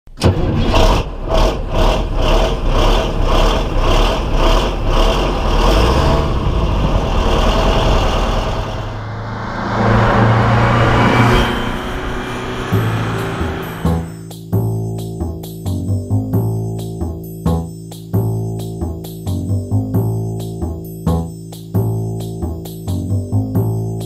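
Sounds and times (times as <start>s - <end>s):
bus engine running: 0.2s - 14.2s.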